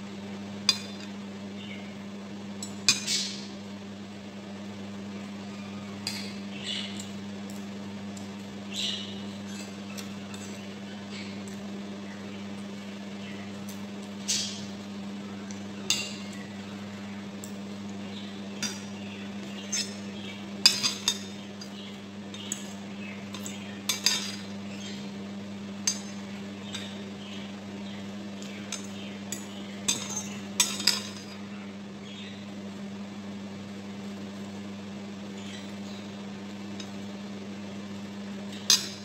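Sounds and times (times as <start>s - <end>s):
steady low hum: 0.0s - 39.0s
cutlery clinking on ceramic bowl: 23.3s - 24.5s, 28.7s - 31.4s.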